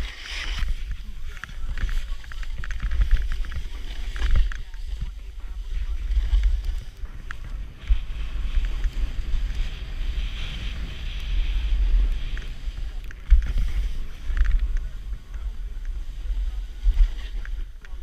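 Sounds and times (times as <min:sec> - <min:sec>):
snowboard hissing through snow: 0:00.0 - 0:00.9, 0:07.6 - 0:14.3
wind buffeting microphone: 0:00.0 - 0:18.0.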